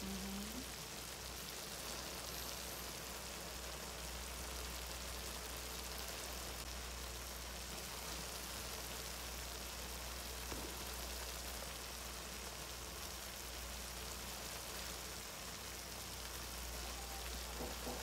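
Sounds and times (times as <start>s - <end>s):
broth simmering in a wok: 0.0s - 18.0s.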